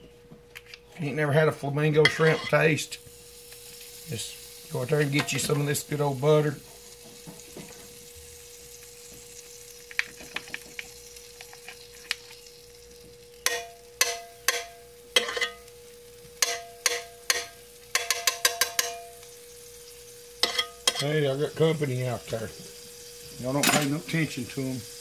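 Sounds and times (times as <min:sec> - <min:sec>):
faint steady hum: 0:00.0 - 0:25.0
butter sizzling in a skillet: 0:01.3 - 0:25.0
metal spoon clanking on pan: 0:02.0 - 0:02.6, 0:13.4 - 0:15.7, 0:16.4 - 0:19.2, 0:20.4 - 0:21.2, 0:23.6 - 0:24.0.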